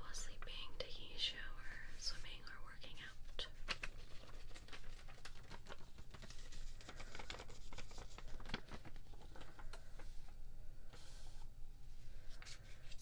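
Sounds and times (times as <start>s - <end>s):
packaging crinkling and rustling: 3.4s - 11.1s.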